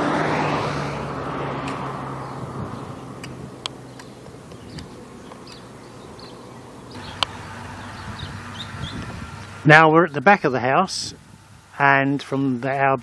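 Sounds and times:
sharp clicks: 0:03.2 - 0:05.7, 0:06.9 - 0:07.4.

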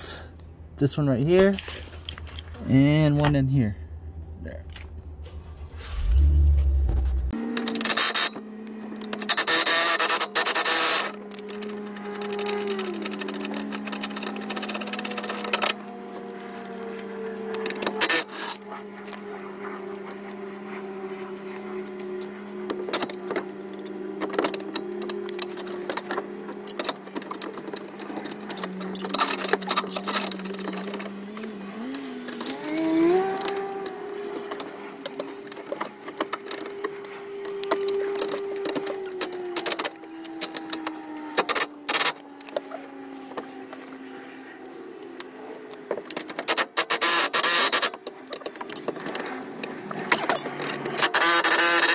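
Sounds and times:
clicks and metal knocks: 0:21.4 - 0:42.7, 0:45.0 - 0:51.9.

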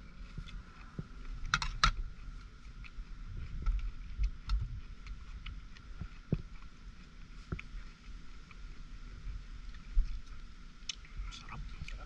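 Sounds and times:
man chewing: 0:00.0 - 0:12.0
wind rumble on microphone: 0:00.0 - 0:12.0.

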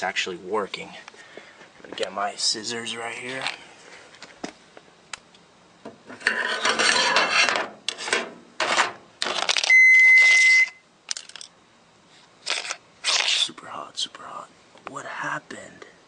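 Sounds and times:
electronic beep: 0:09.7 - 0:10.8
crunching and scraping on gravel: 0:12.4 - 0:13.5.

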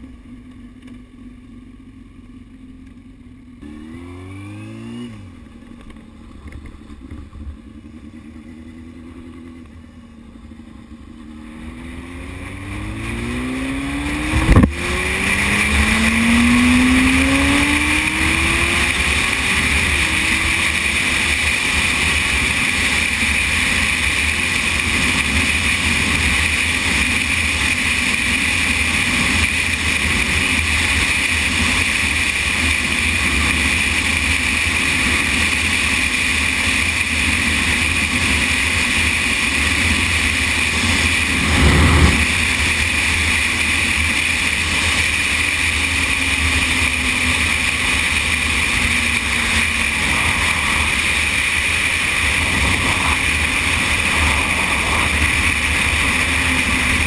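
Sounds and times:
motorcycle engine running: 0:00.0 - 0:57.0
wind rush over microphone: 0:14.0 - 0:18.8, 0:40.8 - 0:43.0, 0:49.9 - 0:57.0.

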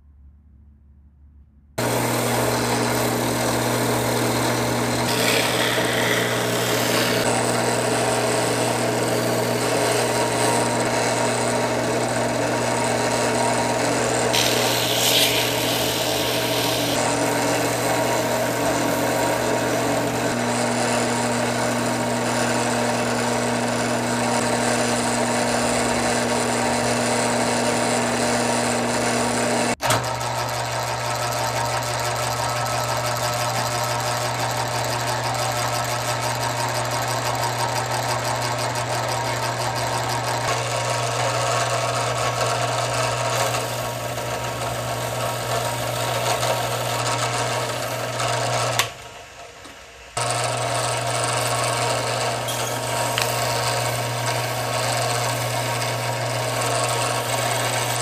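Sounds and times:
power tool grinding: 0:01.8 - 0:30.8, 0:37.5 - 0:58.0.

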